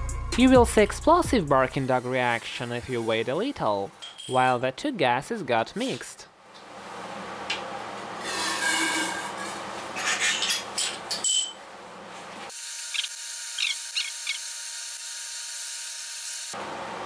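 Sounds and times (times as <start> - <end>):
glass scraping against glass: 8.2 - 11.5
glass clink: 11.1 - 11.6.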